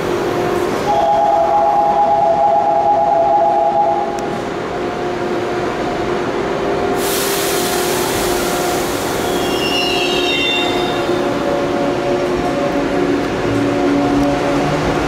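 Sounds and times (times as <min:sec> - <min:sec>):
electric train hum: 0:00.0 - 0:15.0
loud hiss: 0:07.0 - 0:10.2.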